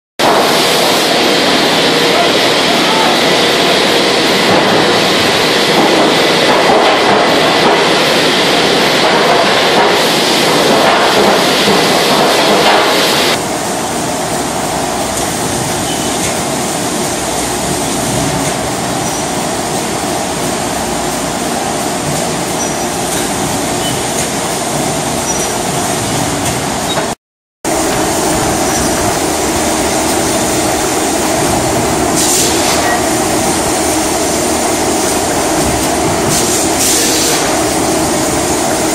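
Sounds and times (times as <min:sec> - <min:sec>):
forging press machinery din: 0:00.2 - 0:38.9.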